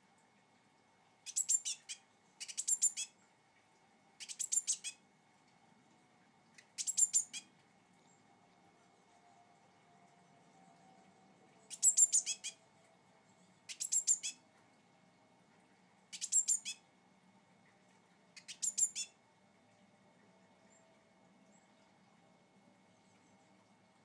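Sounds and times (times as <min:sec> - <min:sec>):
blue tit calling: 0:01.3 - 0:03.1, 0:04.2 - 0:05.0, 0:06.6 - 0:07.5, 0:11.7 - 0:12.6, 0:13.7 - 0:14.4, 0:16.1 - 0:16.8, 0:18.4 - 0:19.2.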